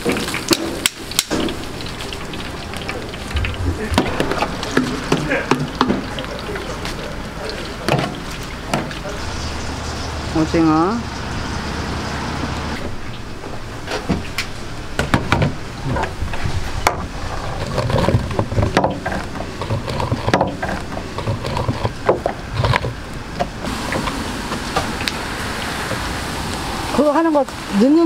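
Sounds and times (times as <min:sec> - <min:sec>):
voices: 0:02.1 - 0:11.2, 0:26.5 - 0:28.0
background hubbub: 0:02.1 - 0:11.3.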